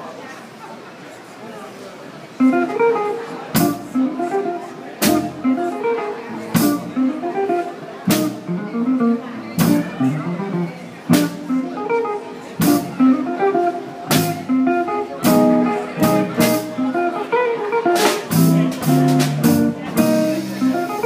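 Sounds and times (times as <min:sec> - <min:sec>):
electric guitar melody: 0:02.4 - 0:21.0
drum kit and cymbals: 0:03.6 - 0:04.3, 0:05.0 - 0:07.1, 0:08.1 - 0:08.6, 0:09.6 - 0:10.4, 0:11.1 - 0:11.7, 0:12.6 - 0:17.1, 0:17.8 - 0:21.0
plucked double bass: 0:03.6 - 0:21.0.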